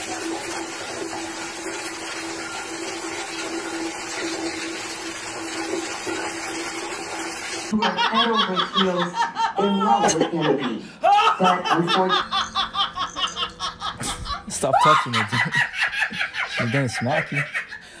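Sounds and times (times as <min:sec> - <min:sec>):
shower water spray hissing: 0:00.0 - 0:07.7
person speaking: 0:14.1 - 0:15.6, 0:16.5 - 0:17.6.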